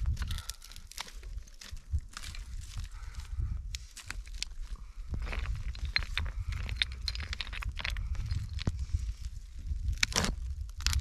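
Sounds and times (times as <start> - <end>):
brushwood snapping and crackling: 0.0 - 4.7, 9.7 - 11.0
low rumble: 0.0 - 11.0.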